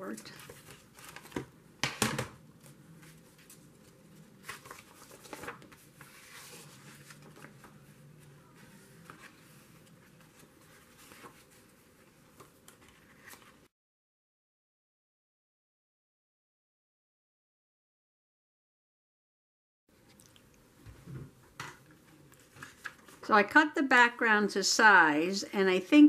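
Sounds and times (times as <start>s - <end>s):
paper rustling: 0.2s - 1.6s, 2.2s - 13.7s, 22.0s - 23.2s.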